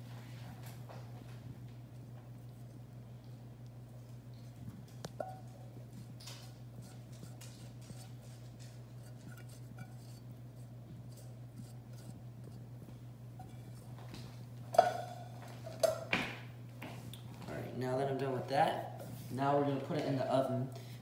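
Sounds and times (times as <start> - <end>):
steady low hum: 0.0 - 21.0
cookware clanking: 5.2 - 5.6, 14.7 - 16.1
spatula scraping saucepan: 6.7 - 12.6.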